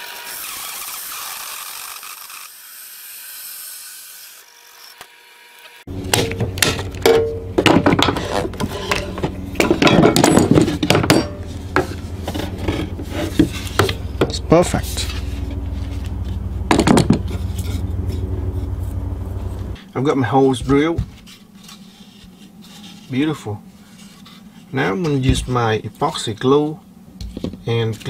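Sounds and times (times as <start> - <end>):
hole saw grinding wood: 0.0 - 19.8
drill press motor hum: 4.4 - 19.8.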